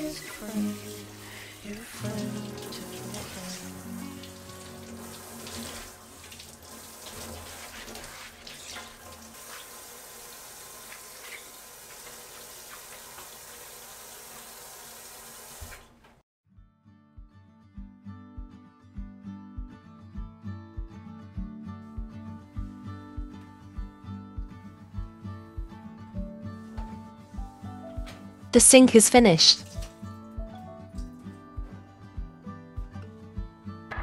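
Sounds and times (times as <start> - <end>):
water running into metal sink: 0.0 - 16.2, 29.6 - 30.4.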